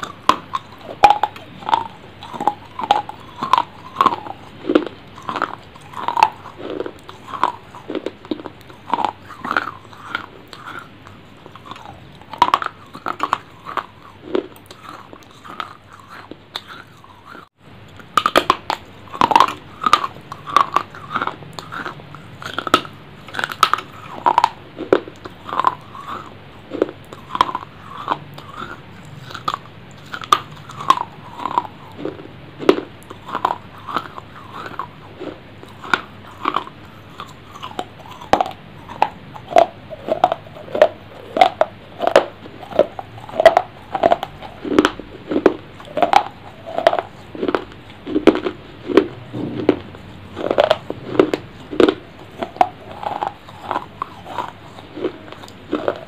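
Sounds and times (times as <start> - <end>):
crunchy chewing: 0.0 - 56.0.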